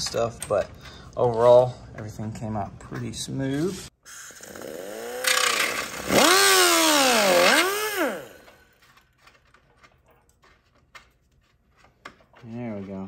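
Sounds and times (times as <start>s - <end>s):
air cut-off tool whining: 4.0s - 8.6s.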